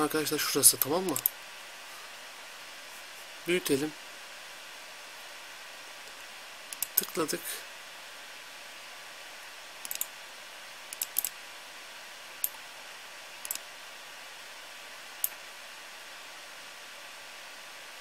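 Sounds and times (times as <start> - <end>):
steady hiss: 0.0 - 18.0
computer mouse clicking: 0.8 - 1.3, 6.7 - 7.2, 9.8 - 10.1, 10.9 - 11.4, 13.4 - 13.6.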